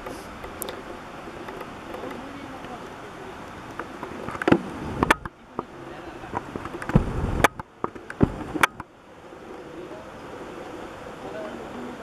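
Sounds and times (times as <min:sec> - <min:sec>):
steady outdoor hiss: 0:00.0 - 0:12.0
low thumps: 0:06.2 - 0:08.8.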